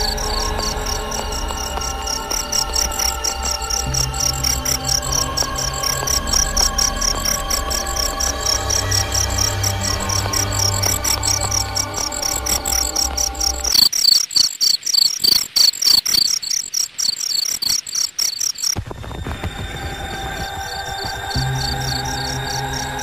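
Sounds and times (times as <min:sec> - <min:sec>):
low droning tones: 0:00.0 - 0:13.7
crickets chirping: 0:00.0 - 0:23.0.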